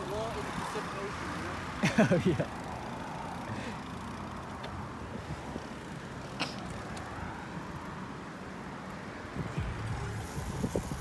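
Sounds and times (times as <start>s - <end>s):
bicycle tyre noise: 0.0s - 11.0s
wind rumbling on microphone: 9.3s - 11.0s.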